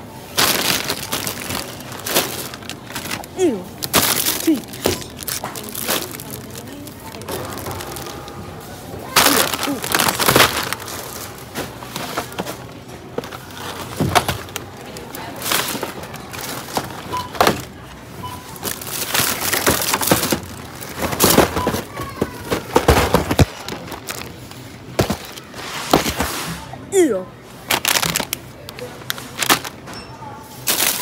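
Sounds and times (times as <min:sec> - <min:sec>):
plastic packaging crinkling: 0:00.2 - 0:26.2, 0:27.6 - 0:31.0
faint short beeps: 0:18.2 - 0:18.6.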